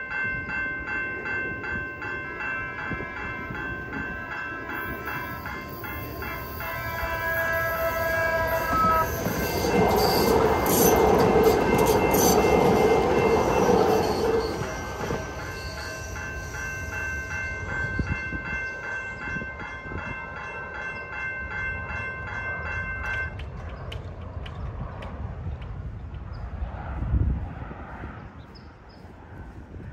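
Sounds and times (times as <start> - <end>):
railroad crossing bell dinging: 0.0 - 23.6
trolley rolling past: 8.5 - 16.5.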